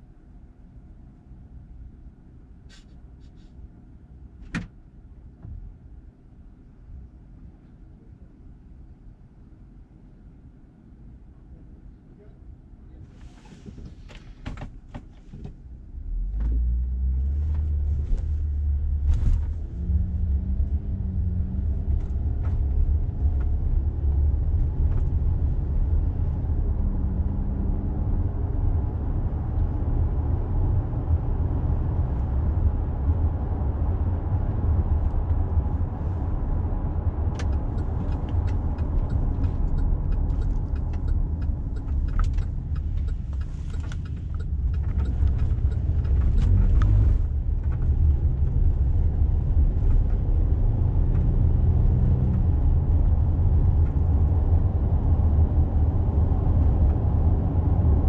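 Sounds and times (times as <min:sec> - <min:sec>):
engine tyre and road rumble: 0:00.0 - 0:58.0.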